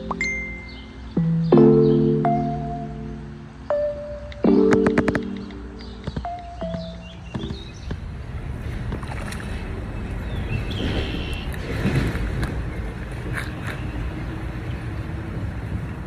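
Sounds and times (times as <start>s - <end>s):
wind rumble on microphone: 6.0s - 16.0s.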